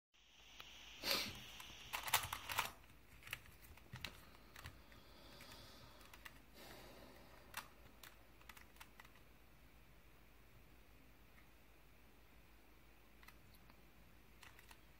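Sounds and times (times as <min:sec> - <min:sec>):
puzzle cube plastic clicks: 0:01.6 - 0:06.5, 0:07.2 - 0:09.3, 0:14.4 - 0:14.9.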